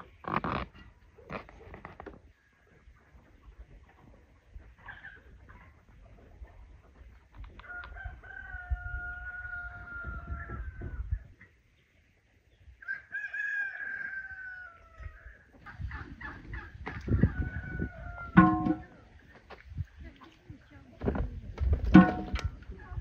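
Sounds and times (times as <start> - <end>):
rooster crowing: 12.9 - 15.2
metal pot clanking on stand: 18.4 - 19.0, 21.9 - 22.5.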